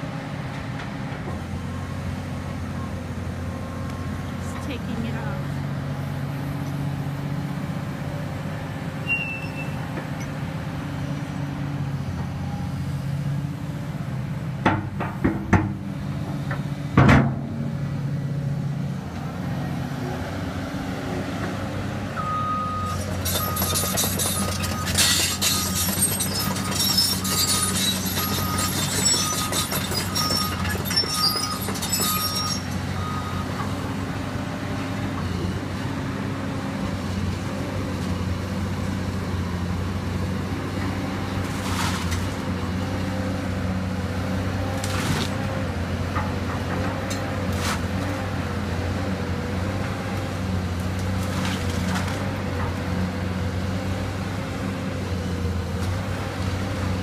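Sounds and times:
diesel engine running: 0.0 - 57.0
travel alarm beeping: 22.2 - 23.7, 27.3 - 33.6
steel tracks rattling: 23.0 - 33.2.

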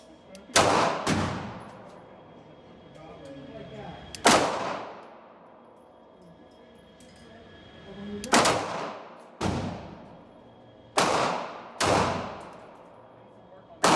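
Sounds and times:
pistol shots echoing indoors: 0.3 - 2.0, 4.1 - 5.8, 8.2 - 13.9.

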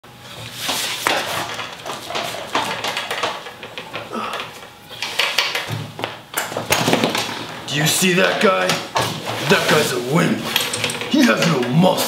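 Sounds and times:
gym cables rattling and clanking: 1.0 - 12.0
person grunting with effort: 4.0 - 4.6.

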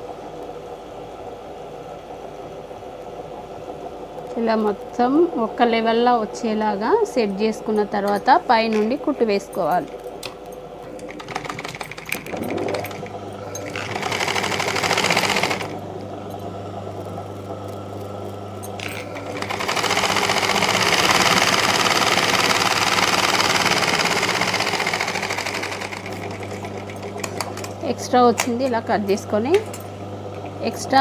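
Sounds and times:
steady low hum: 0.0 - 21.6
sewing machine stitching: 10.9 - 15.8, 18.7 - 27.9.

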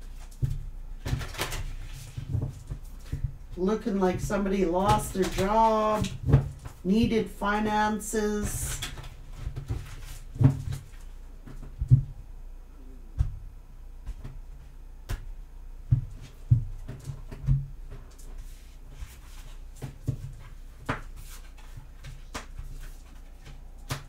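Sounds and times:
cards being shuffled and tapped: 0.0 - 3.6, 8.4 - 12.1, 14.0 - 24.0.

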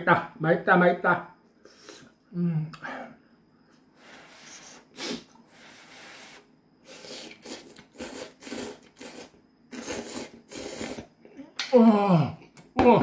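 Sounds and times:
noodles slurped: 6.9 - 11.1.

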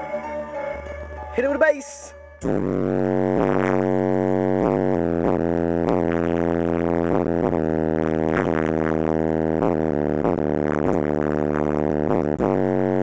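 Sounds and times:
buzzing bass drone: 2.4 - 13.0
hip-hop beat: 2.4 - 13.0.

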